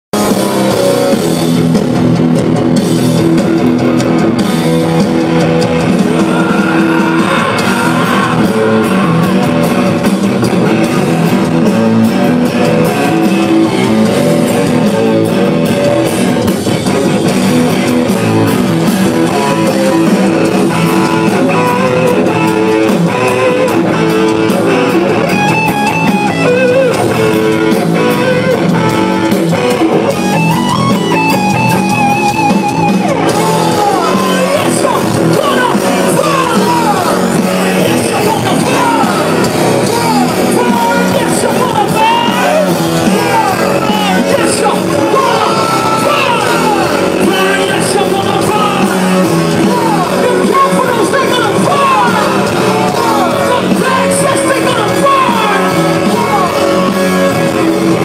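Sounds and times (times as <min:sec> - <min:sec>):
live rock band playing: 0:00.1 - 0:58.0.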